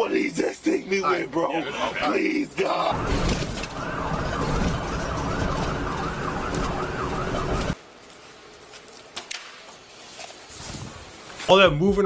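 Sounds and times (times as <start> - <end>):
low vehicle rumble: 2.9 - 7.8
siren yelping: 2.9 - 7.8.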